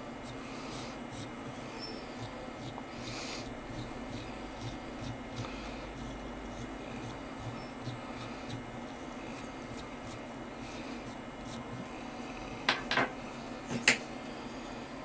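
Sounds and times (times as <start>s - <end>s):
rubbing and scratching of thread: 0.0s - 13.0s
steady low hum: 0.0s - 15.0s.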